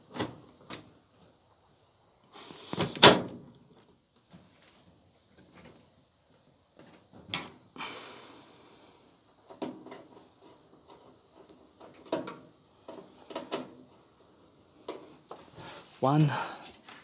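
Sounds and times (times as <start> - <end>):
knocks and clatter of dryer panels: 11.8 - 13.8.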